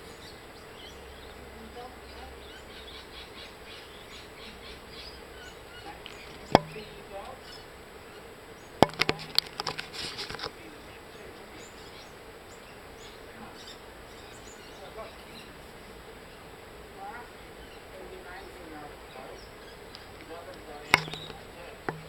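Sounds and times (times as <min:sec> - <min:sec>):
sharp clicks and knocks: 0:06.1 - 0:07.0, 0:08.8 - 0:10.5, 0:20.9 - 0:22.0
small chirps: 0:20.9 - 0:22.0.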